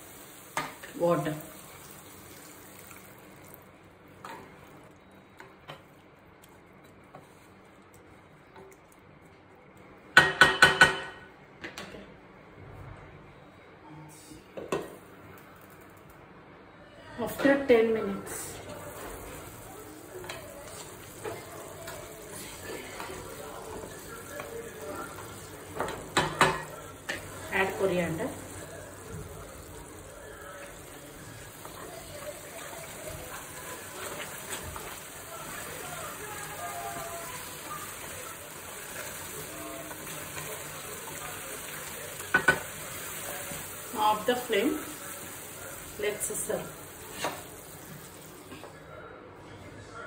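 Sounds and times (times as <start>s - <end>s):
gravy simmering in a pan: 0.0s - 5.0s, 18.6s - 48.5s.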